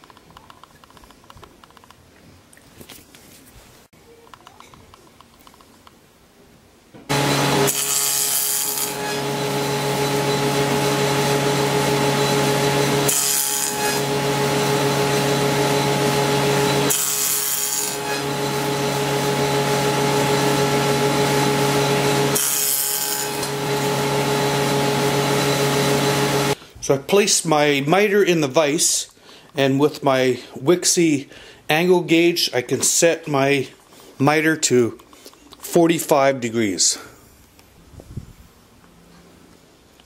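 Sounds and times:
saw cutting wood: 0:07.1 - 0:26.6
table saw motor hum: 0:07.1 - 0:26.6.

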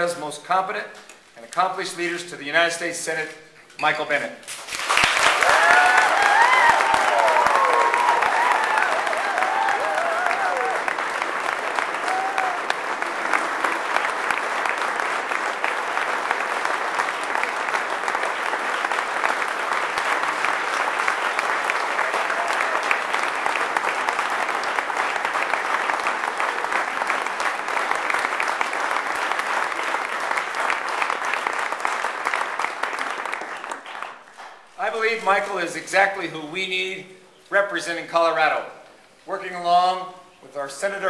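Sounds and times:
audience applauding: 0:04.5 - 0:34.8.

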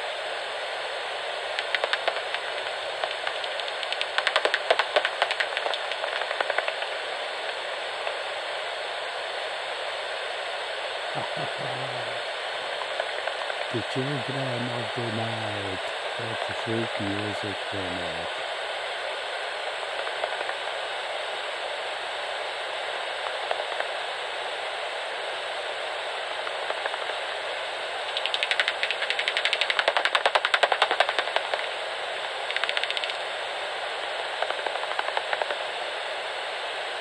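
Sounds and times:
bat echolocation clicks: 0:01.6 - 0:06.9, 0:28.2 - 0:31.7, 0:32.5 - 0:33.2.

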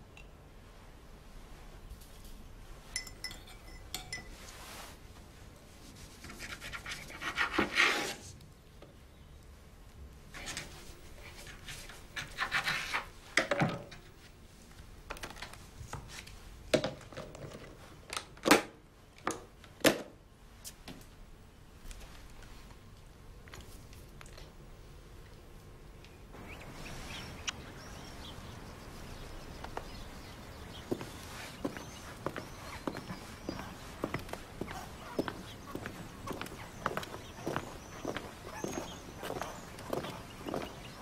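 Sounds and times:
dishes and cutlery clinking: 0:02.9 - 0:04.6.

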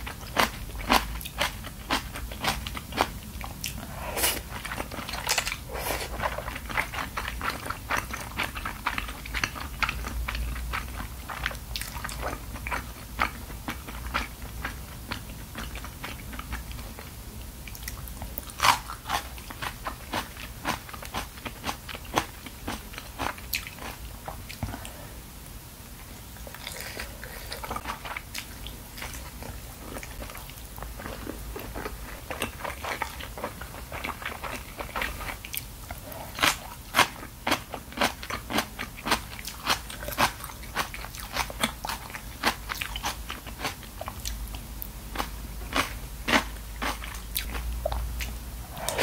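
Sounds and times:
wet chewing sounds: 0:00.0 - 0:25.0, 0:26.4 - 0:49.0.

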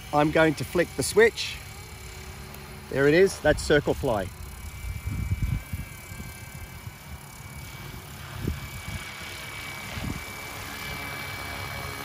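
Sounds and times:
rc helicopter whine: 0:00.0 - 0:12.0
wind on microphone: 0:03.4 - 0:10.6.

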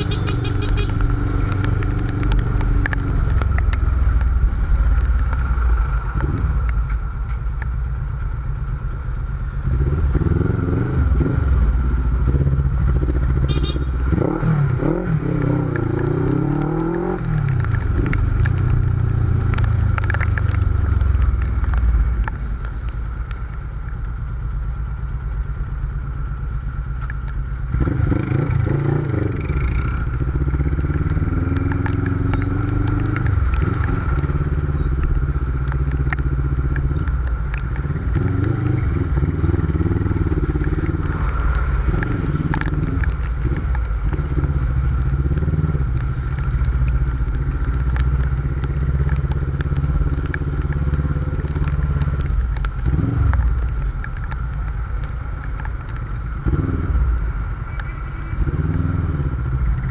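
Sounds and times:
motorcycle engine revving: 0:09.6 - 0:21.2, 0:27.7 - 0:53.7, 0:56.2 - 0:59.9.

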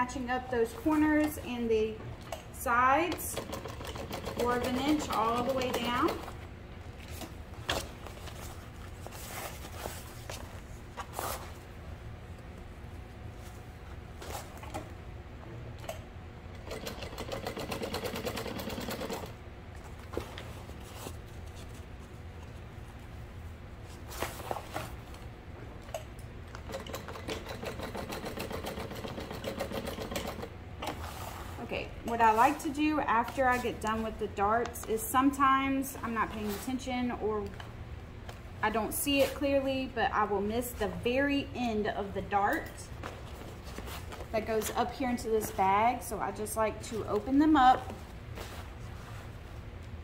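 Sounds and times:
sewing machine stitching: 0:03.3 - 0:06.3, 0:26.7 - 0:30.5.

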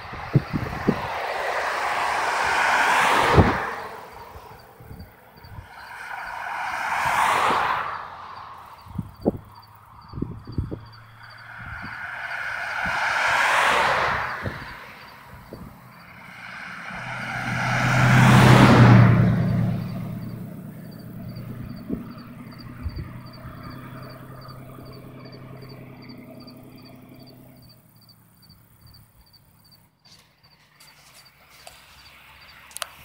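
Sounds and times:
car driving past: 0:00.0 - 0:27.8
insect chirping high: 0:08.3 - 0:29.8.

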